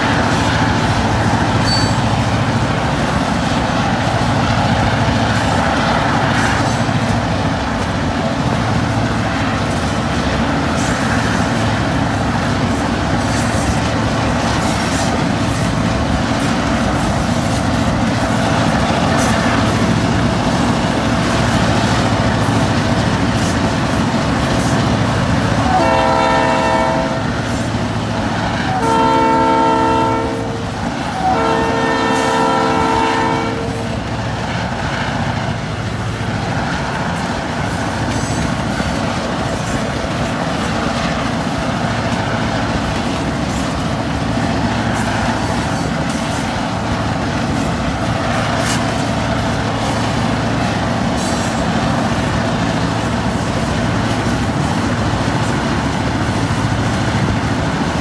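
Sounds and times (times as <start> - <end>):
freight train running: 0.0 - 58.0
locomotive air horn blasts: 25.6 - 27.5, 28.6 - 34.0.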